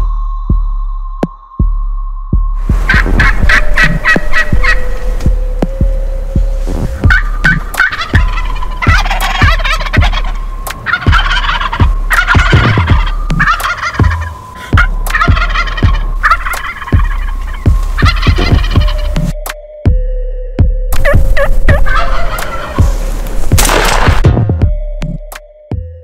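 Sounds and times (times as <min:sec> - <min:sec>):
wild turkeys gobbling: 0:02.7 - 0:05.8, 0:06.5 - 0:19.4, 0:21.0 - 0:23.8.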